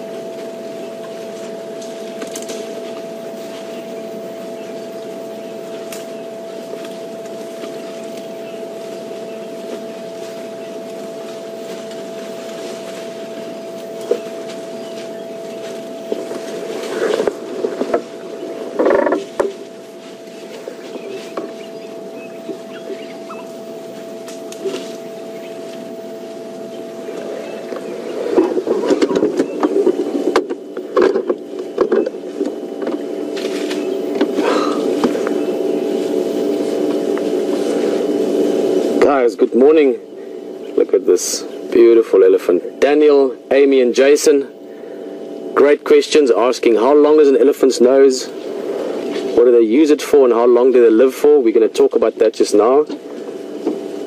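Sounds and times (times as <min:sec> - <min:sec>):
steady mechanical hum: 0:00.0 - 0:54.0
vehicle engine running: 0:00.0 - 0:54.0
branches snapping: 0:00.4 - 0:21.8, 0:22.4 - 0:26.4, 0:27.1 - 0:38.0.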